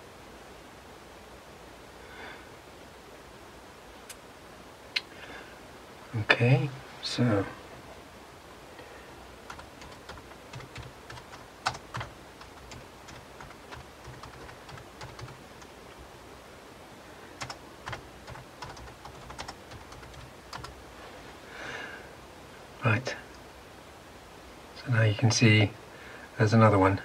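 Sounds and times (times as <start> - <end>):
keyboard keys clicking: 9.5 - 15.4, 17.4 - 20.7.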